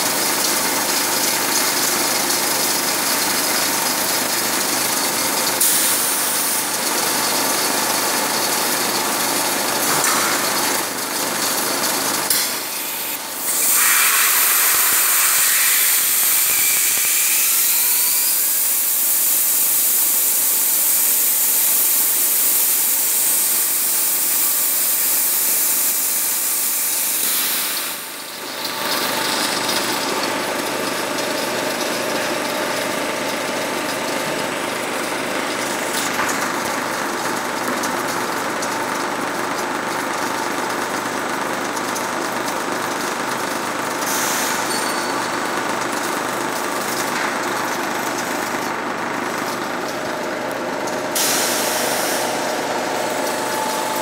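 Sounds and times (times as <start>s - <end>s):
machine running: 0.1s - 20.4s, 45.7s - 54.0s
loud high hiss: 12.6s - 19.4s.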